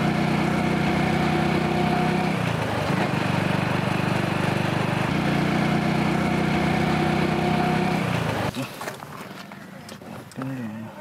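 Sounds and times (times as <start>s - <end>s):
motorcycle engine running: 0.0s - 8.6s.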